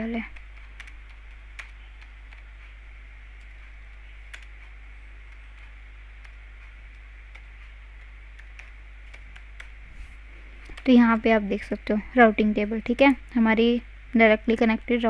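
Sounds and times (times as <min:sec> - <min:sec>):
low hum: 0:00.0 - 0:15.0
keyboard keystrokes: 0:00.1 - 0:02.8, 0:03.4 - 0:09.8.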